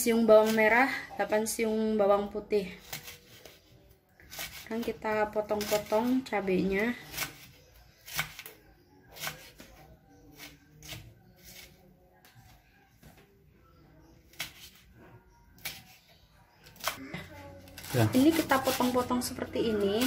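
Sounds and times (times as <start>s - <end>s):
knife slicing chilies: 2.7s - 11.9s, 14.2s - 14.9s, 15.6s - 17.1s.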